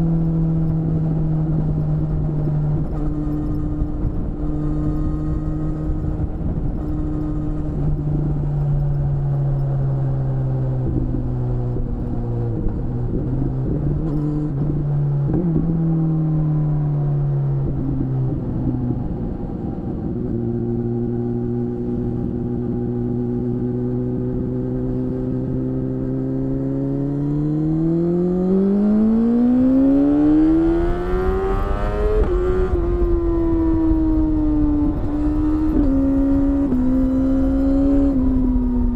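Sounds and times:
motorcycle engine revving: 0.0s - 38.9s.

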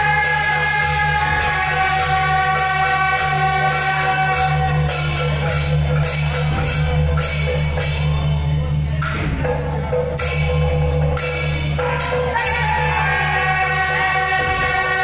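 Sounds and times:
reed horn holding long notes: 0.0s - 5.0s, 12.7s - 15.0s
drums: 0.0s - 15.0s.

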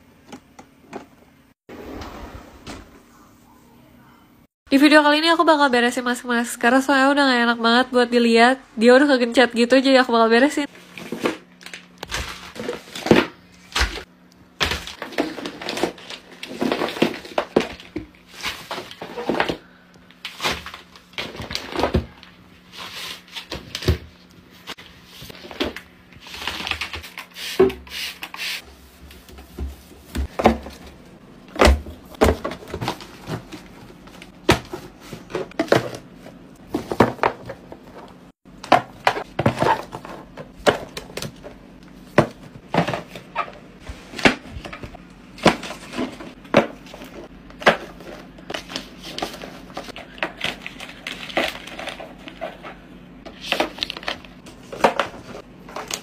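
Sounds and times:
foil sachets rustling and crinkling: 47.9s - 52.7s.

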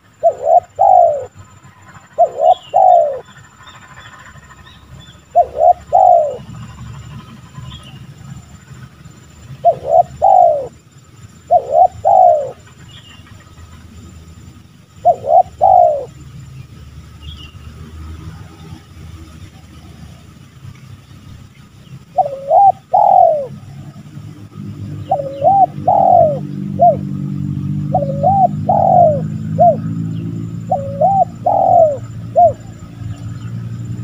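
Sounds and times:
dove cooing: 0.0s - 3.5s, 5.3s - 8.6s, 9.5s - 10.8s, 11.4s - 13.4s, 14.9s - 16.2s, 22.1s - 34.0s
low rumbling noise: 0.0s - 34.0s.

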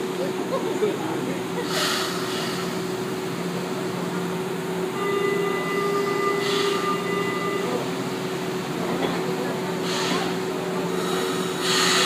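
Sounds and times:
train equipment humming: 0.0s - 12.0s
short hiss of air: 11.0s - 12.0s.

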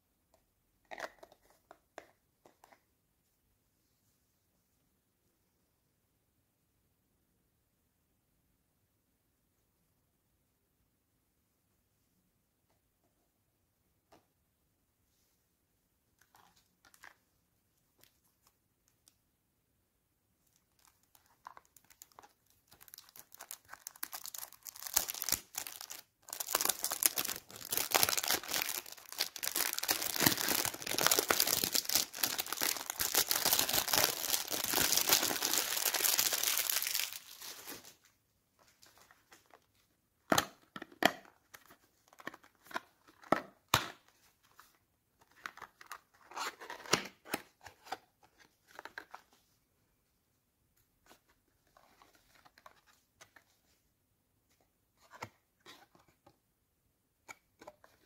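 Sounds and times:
plastic wrap crinkling: 20.5s - 38.0s.

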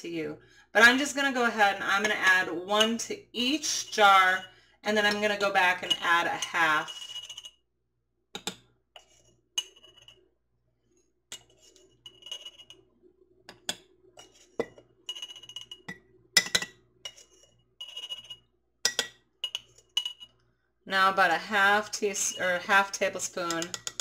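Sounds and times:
spoon clinking on glass jars: 13.5s - 20.4s, 23.5s - 24.0s.

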